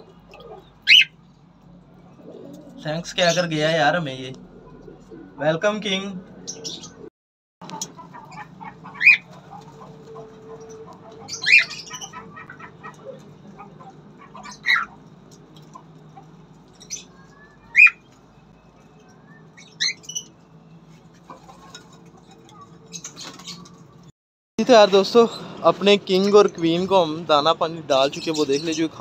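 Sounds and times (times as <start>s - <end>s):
cockatiels squawking: 0.4s - 1.1s, 7.7s - 15.0s, 15.7s - 18.1s.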